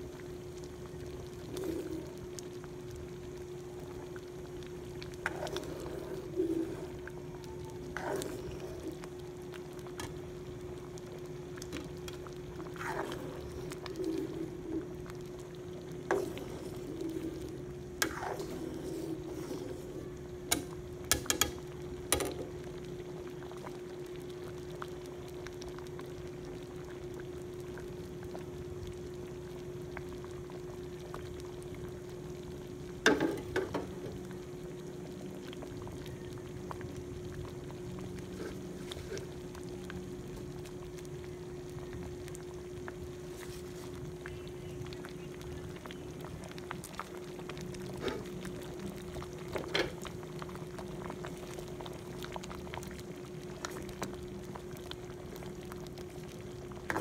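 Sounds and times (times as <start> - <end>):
steady hum: 0.0 - 57.0
ladle stirring thick stew: 5.2 - 6.9, 7.9 - 8.9, 11.7 - 14.8, 18.0 - 20.0.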